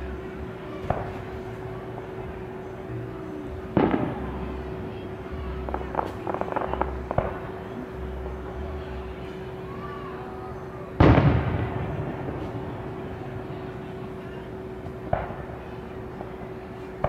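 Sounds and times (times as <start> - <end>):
crackling pops: 5.7 - 7.6.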